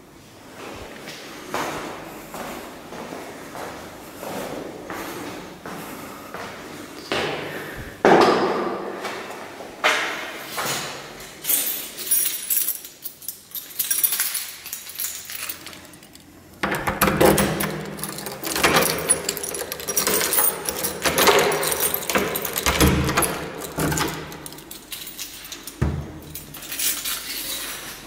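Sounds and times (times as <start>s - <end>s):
keys jangling: 11.3s - 28.0s.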